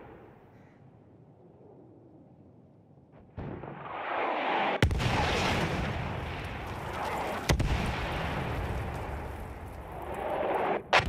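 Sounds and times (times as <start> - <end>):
artillery and explosions din: 3.1 - 11.0.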